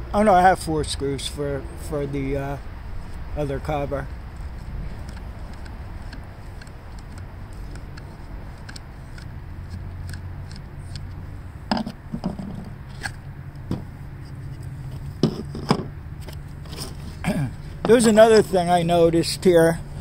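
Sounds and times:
clicks and scrapes of small screw: 4.4s - 11.2s, 11.8s - 13.2s, 14.2s - 17.2s.

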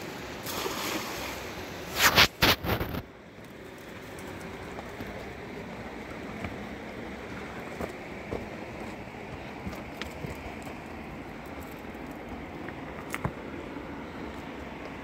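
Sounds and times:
river water flowing over stones: 0.0s - 3.0s
cast net splashing into water: 0.4s - 1.5s.

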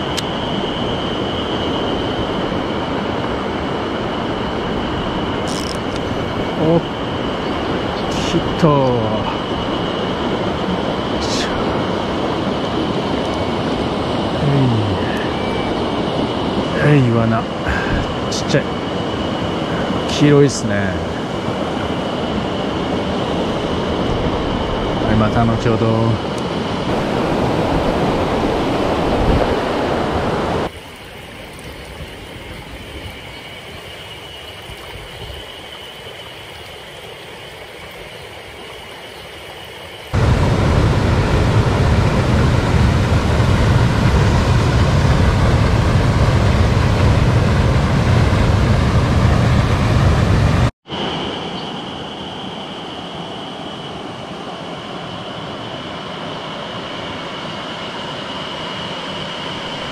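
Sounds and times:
steady high-pitched hum: 0.0s - 59.9s
water rushing over rocks: 26.9s - 38.9s.

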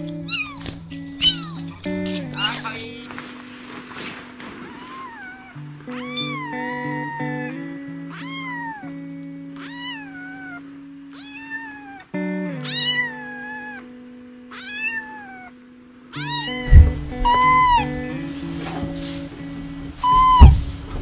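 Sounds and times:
kitten meowing: 0.3s - 1.6s, 4.6s - 9.0s, 9.6s - 13.9s, 14.5s - 15.5s, 16.2s - 19.1s, 20.0s - 20.8s
low thud: 16.7s - 18.0s, 19.8s - 21.0s.

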